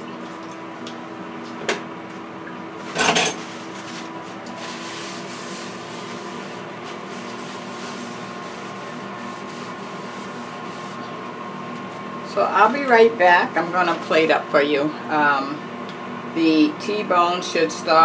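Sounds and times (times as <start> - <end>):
air fryer fan hum: 0.0 - 18.0
paper towel wiping countertop: 2.8 - 13.1.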